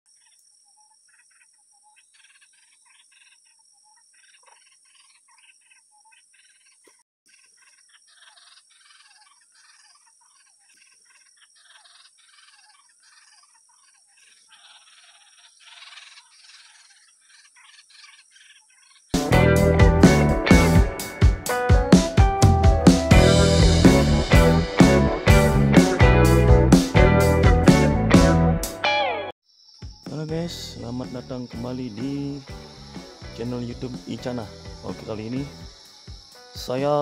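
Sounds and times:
chirping animal calls: 0:00.1 - 0:21.2, 0:30.7 - 0:37.0
steady high-pitched hiss: 0:29.5 - 0:37.0.

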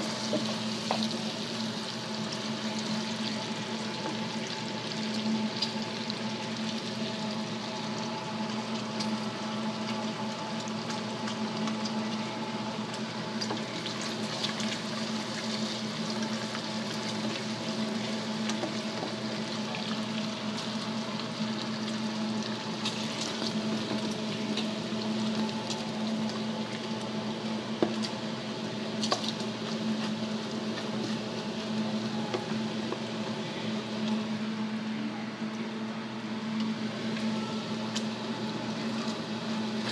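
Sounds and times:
bacon sizzling in frying pan: 0:00.0 - 0:34.4, 0:36.7 - 0:39.9.

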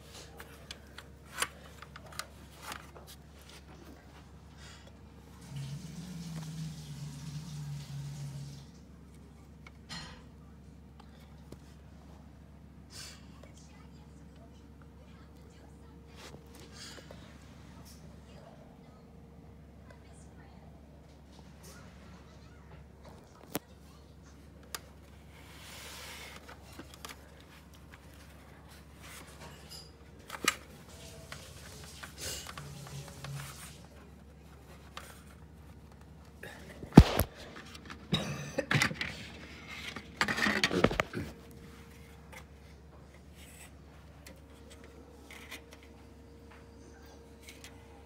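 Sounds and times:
plastic clattering and rubbing: 0:38.7 - 0:42.5.

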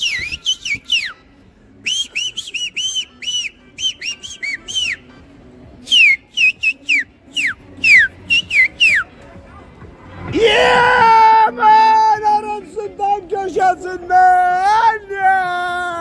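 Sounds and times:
man whistling short notes: 0:00.0 - 0:01.2, 0:01.8 - 0:05.1, 0:05.8 - 0:09.1.

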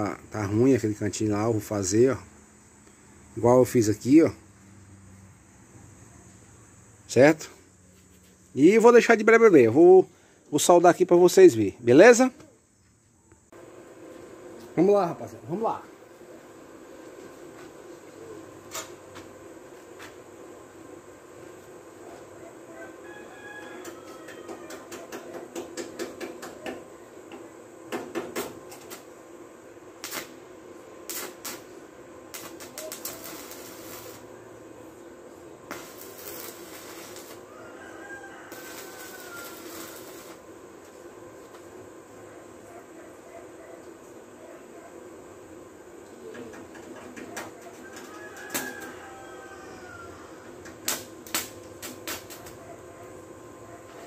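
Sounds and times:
arc welder crackling: 0:13.6 - 0:22.3, 0:22.9 - 0:42.1, 0:45.9 - 0:54.0
arc welder bursts: 0:27.8 - 0:41.1, 0:50.7 - 0:52.6.

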